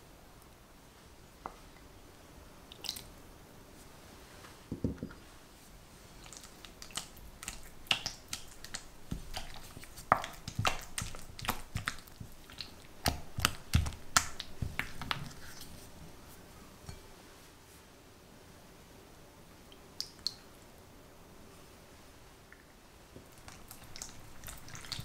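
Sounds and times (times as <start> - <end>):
spatula squelching cream cheese: 5.9 - 17.0, 23.2 - 25.0.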